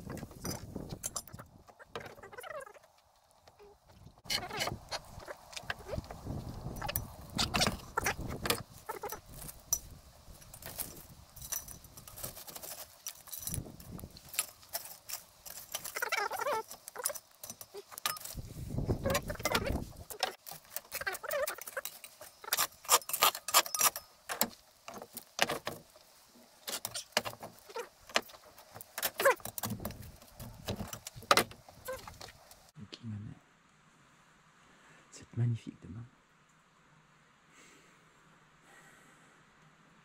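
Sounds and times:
charcoal scraping: 0:03.7 - 0:32.7
charcoal clinking: 0:04.3 - 0:32.7.

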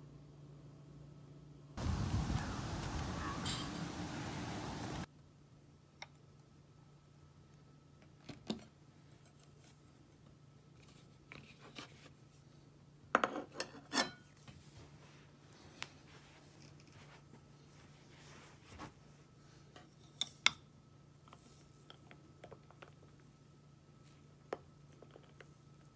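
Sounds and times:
outdoor noise: 0:00.0 - 0:12.1
low steady hum: 0:00.0 - 0:13.1
crockery knocks and clinks: 0:03.4 - 0:03.9.

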